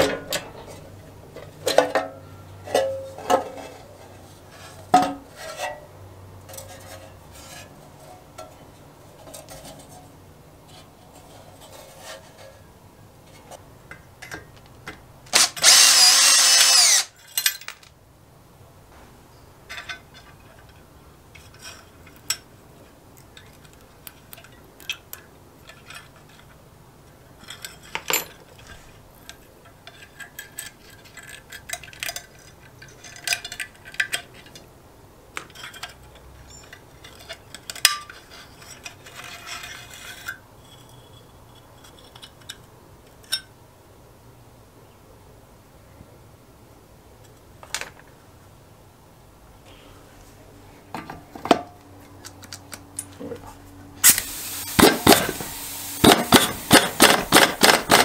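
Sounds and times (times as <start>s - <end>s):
metal parts clinking and knocking: 13.9s - 18.0s, 19.7s - 22.5s, 23.2s - 26.6s, 27.3s - 34.7s, 35.3s - 43.5s, 54.0s - 58.0s
power driver whirring: 15.4s - 17.1s.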